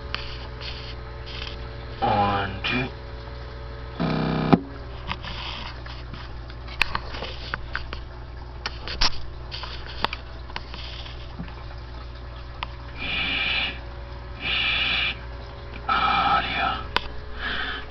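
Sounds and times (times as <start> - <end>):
steady low hum: 0.0 - 17.9
clicks and crackles: 5.0 - 11.6.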